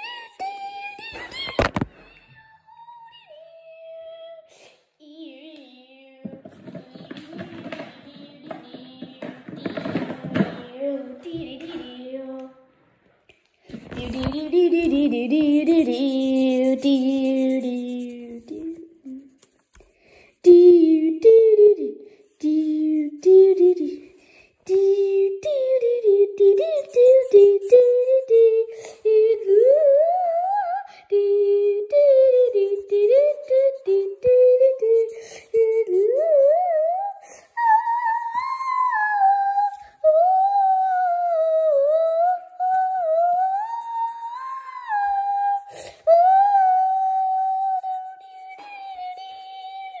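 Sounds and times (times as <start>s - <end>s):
person humming: 14.0s - 19.4s, 20.4s - 38.2s.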